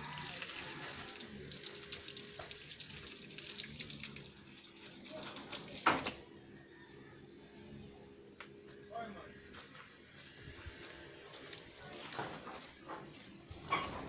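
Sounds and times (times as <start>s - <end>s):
water running from garden hose: 0.0s - 6.2s
water splashing over leaves: 0.0s - 6.2s.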